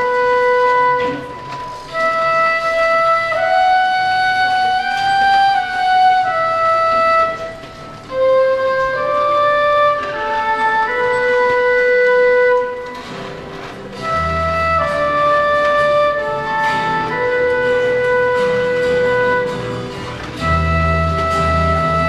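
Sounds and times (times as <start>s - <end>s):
flute playing slow melody: 0.0s - 22.0s.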